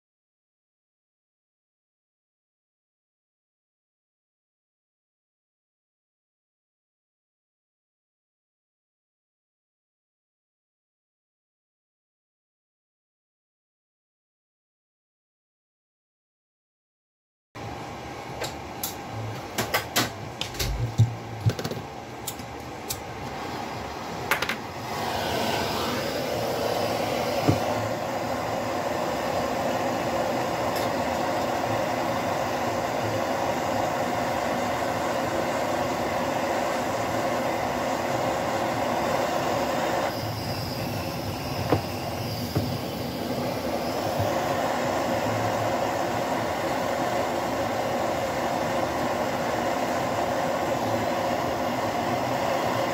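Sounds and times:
gas torch flame hissing: 18.3 - 52.9.

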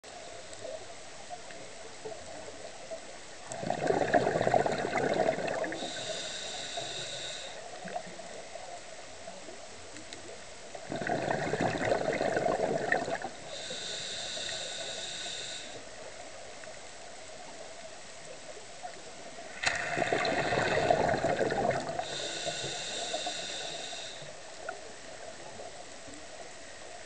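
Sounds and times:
diver exhaling bubbles: 3.5 - 6.3, 10.8 - 14.7, 19.6 - 24.2
regulator inhalation hiss: 5.7 - 7.7, 13.4 - 15.9, 22.0 - 24.4.

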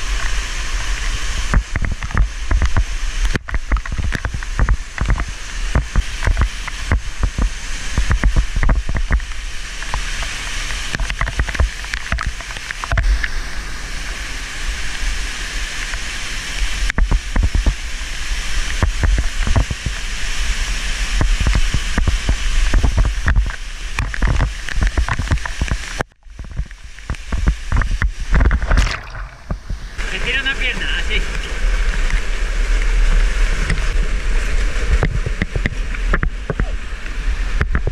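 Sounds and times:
rush of falling water: 0.0 - 37.9
water thumps on camera: 1.4 - 10.0, 10.8 - 13.3, 16.9 - 17.8, 18.7 - 20.0, 21.2 - 30.1, 34.8 - 36.8, 37.6 - 37.9
low buffeting: 26.3 - 32.6.

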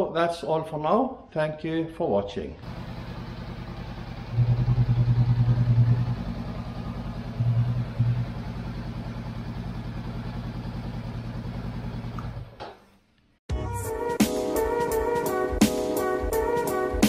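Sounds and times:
motorcycle engine idling: 2.6 - 12.6.

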